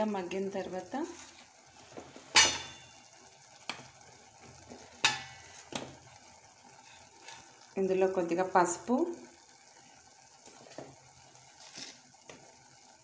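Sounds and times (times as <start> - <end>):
faint frying sizzle: 0.0 - 13.0
utensil clinking on metal pot: 2.3 - 3.1.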